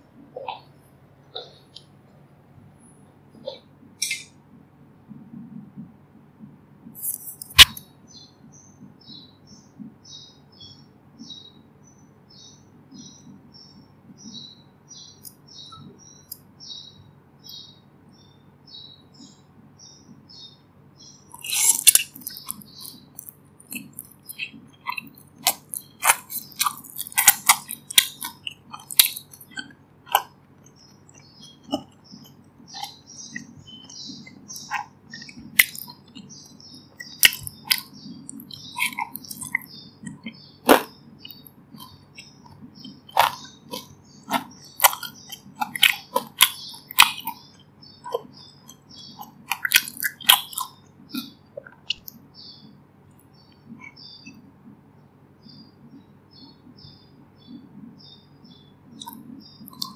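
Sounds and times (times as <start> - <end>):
bird chirping: 0.2 - 2.0, 6.9 - 59.9
crunchy bites of fried food: 21.3 - 30.4, 31.1 - 36.3, 37.0 - 52.2
wet chewing: 21.3 - 52.2, 59.0 - 59.9.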